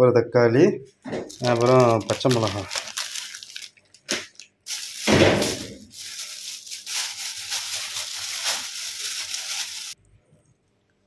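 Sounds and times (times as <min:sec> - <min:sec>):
chillies rustling: 0:01.3 - 0:10.0.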